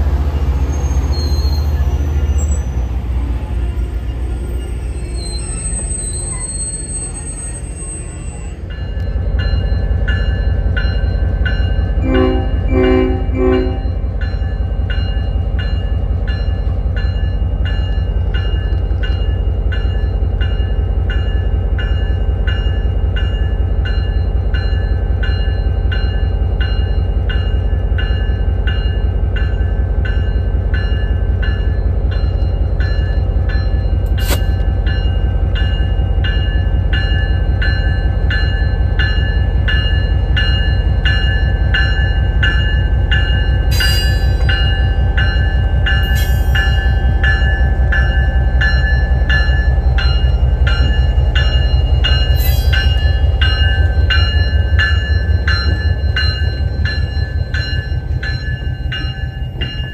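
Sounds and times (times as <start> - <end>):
diesel locomotive engine rumble: 0.0 - 59.9
locomotive bell ringing: 3.6 - 59.9
horn toots: 12.0 - 13.9.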